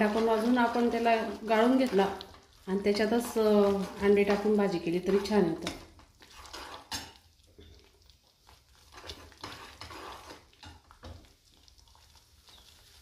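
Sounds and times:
ladle scraping in a pan: 0:00.0 - 0:07.3, 0:08.8 - 0:11.2.

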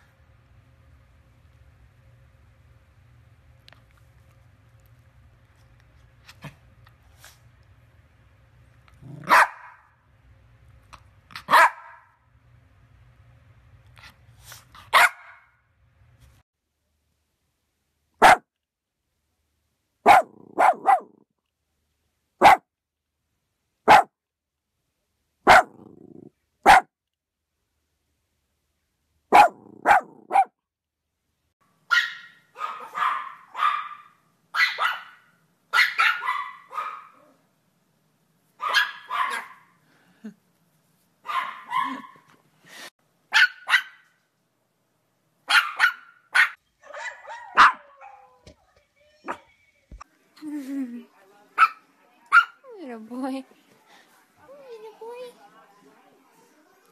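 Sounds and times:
small dogs barking: 0:09.0 - 0:09.9, 0:11.4 - 0:12.1, 0:14.9 - 0:15.5, 0:18.2 - 0:18.5, 0:20.0 - 0:21.2, 0:22.4 - 0:22.6, 0:23.9 - 0:24.1, 0:25.5 - 0:25.9, 0:26.6 - 0:26.9, 0:29.3 - 0:30.6, 0:31.9 - 0:37.4, 0:38.6 - 0:39.8, 0:41.2 - 0:42.3, 0:43.3 - 0:44.1, 0:45.4 - 0:48.4, 0:51.6 - 0:52.6.

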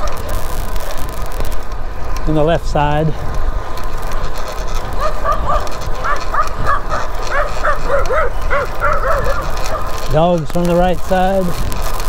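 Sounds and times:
wind rumble on microphone: 0:00.0 - 0:12.0
dogs barking: 0:04.9 - 0:10.1.

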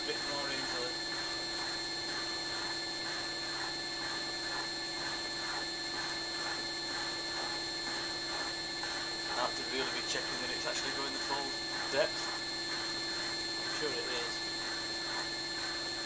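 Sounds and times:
milling machine motor whine: 0:00.0 - 0:16.0.

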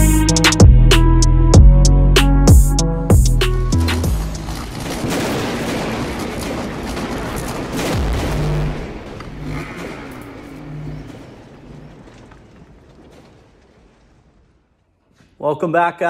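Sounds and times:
rumbling explosion-like wash: 0:04.3 - 0:14.0
deep falling boom: 0:05.0 - 0:12.3
low tones: 0:07.8 - 0:13.0.

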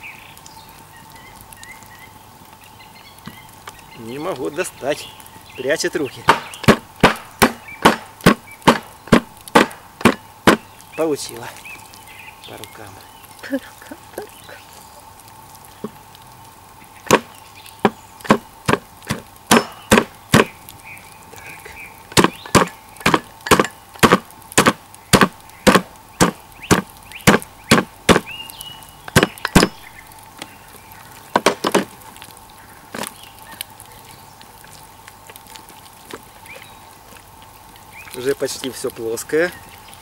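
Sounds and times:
hatchet striking cleaver through bones: 0:06.3 - 0:10.6, 0:17.1 - 0:20.5, 0:22.2 - 0:28.3, 0:29.1 - 0:29.8.

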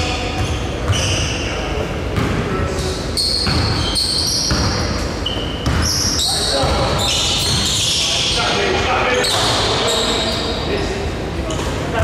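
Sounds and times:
sneakers squeaking on court: 0:00.0 - 0:10.7
basketball bouncing: 0:03.4 - 0:03.8, 0:04.5 - 0:04.8, 0:05.6 - 0:05.9.

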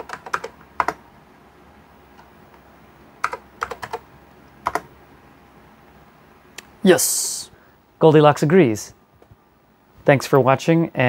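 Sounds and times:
keyboard keys typing: 0:00.0 - 0:01.0, 0:03.2 - 0:04.9.

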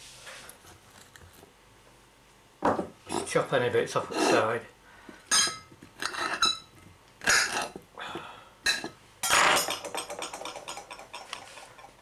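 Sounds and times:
knife clinking against plate: 0:05.3 - 0:07.7, 0:08.7 - 0:12.0.

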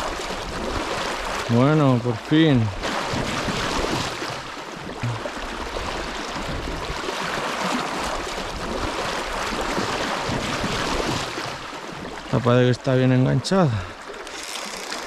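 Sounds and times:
river water rushing over gravel: 0:05.0 - 0:15.0.

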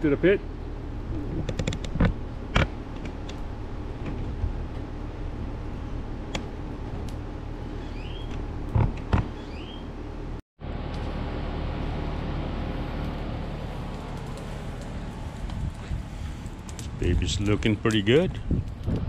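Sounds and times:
bird chirping: 0:07.8 - 0:08.3, 0:09.4 - 0:09.9.

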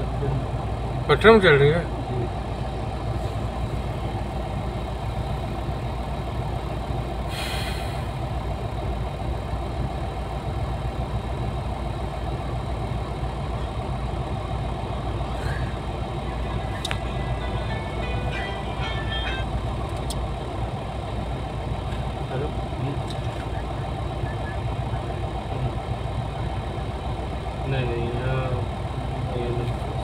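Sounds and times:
excavator diesel engine running: 0:00.0 - 0:30.0
short hiss: 0:07.3 - 0:08.1.

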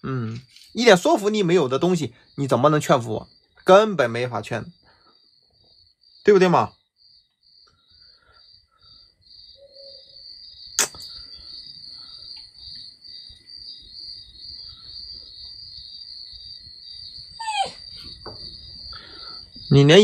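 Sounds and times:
cricket chirping: 0:00.0 - 0:20.0
sharp click: 0:10.8 - 0:11.1.

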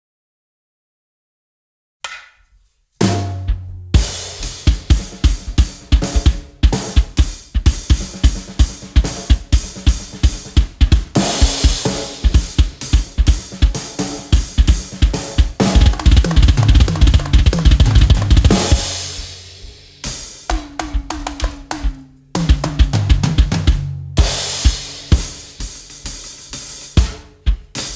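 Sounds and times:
low drum note: 0:03.0 - 0:08.4, 0:15.4 - 0:25.2
drum kit playing funk beat: 0:03.0 - 0:27.9.

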